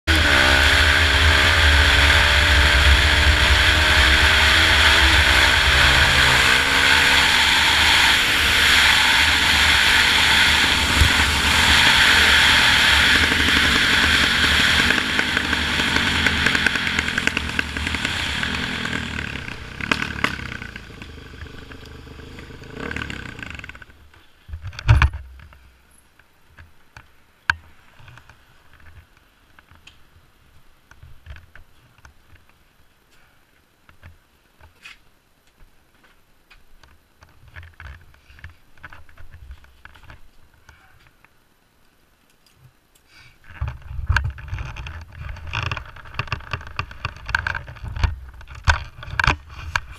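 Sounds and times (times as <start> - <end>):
motorcycle engine accelerating: 0.0 - 24.0.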